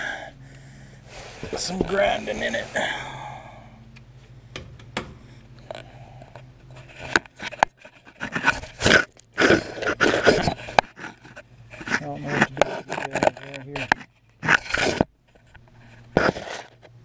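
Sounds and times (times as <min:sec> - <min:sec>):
tool clicks and scrapes: 0:06.7 - 0:16.9.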